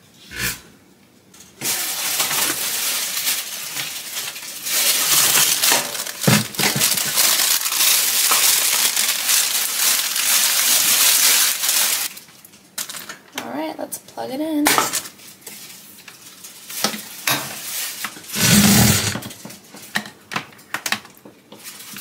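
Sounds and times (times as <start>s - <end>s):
plastic packaging crinkling: 1.7s - 12.3s.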